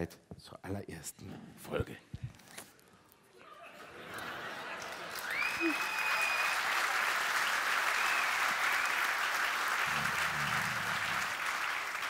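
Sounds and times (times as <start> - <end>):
audience applauding: 4.1 - 12.0.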